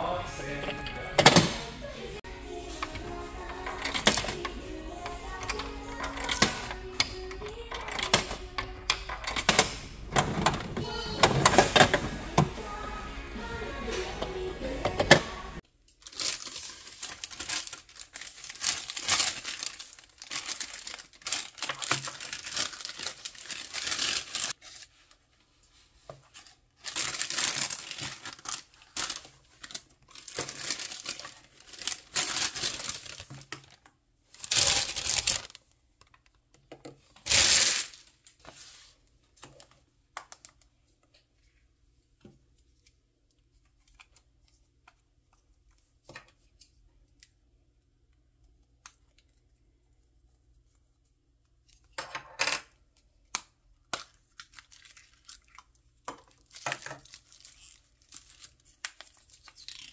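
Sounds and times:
plastic bag rustling: 16.0s - 35.6s, 37.2s - 39.0s, 56.3s - 59.9s.

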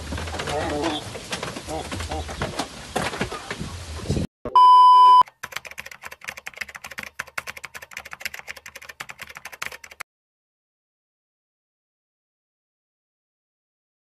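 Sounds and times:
electronic beep: 4.5s - 5.2s
typing keystroke clicks: 5.1s - 10.0s.

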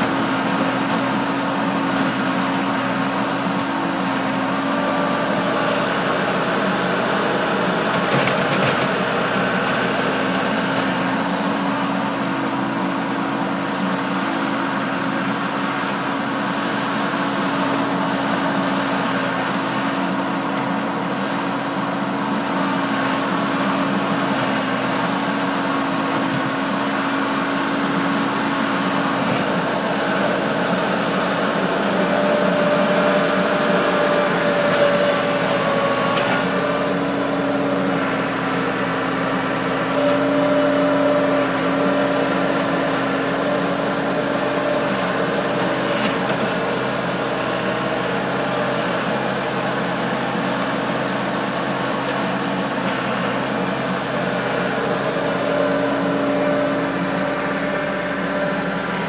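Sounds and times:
loader engine running: 0.0s - 59.0s
higher engine tone: 25.0s - 59.0s.

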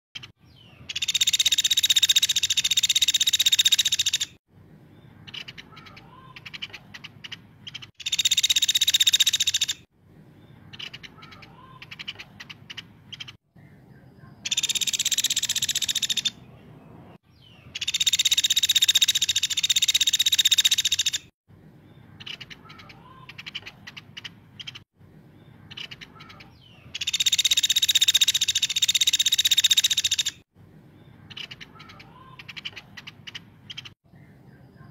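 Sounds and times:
woodpecker high-pitched trills: 0.9s - 4.4s, 5.2s - 9.9s, 14.5s - 16.4s, 17.7s - 21.3s, 25.7s - 30.4s.

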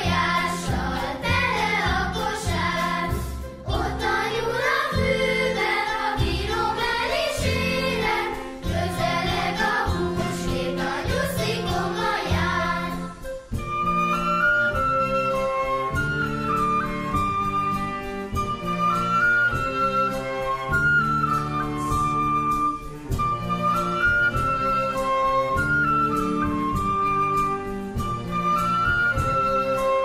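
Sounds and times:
group of voices singing: 0.0s - 13.2s
bouncing bass accompaniment: 0.0s - 14.0s.

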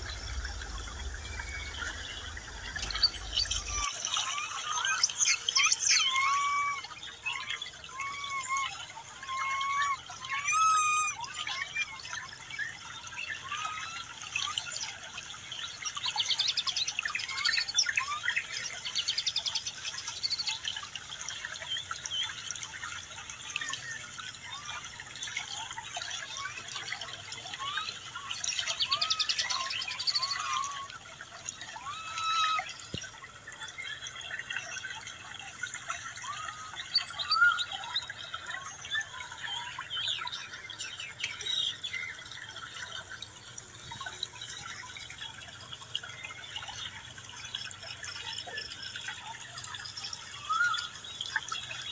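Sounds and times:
high chirping calls: 0.0s - 3.9s.

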